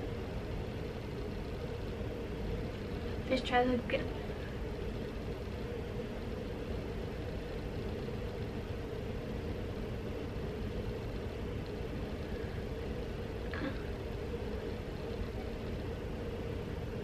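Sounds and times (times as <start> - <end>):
faint drone: 0.0 - 17.0
steady low hum: 0.0 - 17.0.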